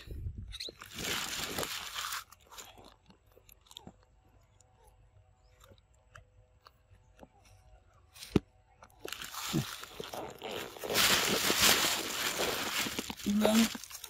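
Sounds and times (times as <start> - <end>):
loud crunching: 0.6 - 4.1, 8.1 - 14.0
monkey chewing mango: 8.7 - 14.0.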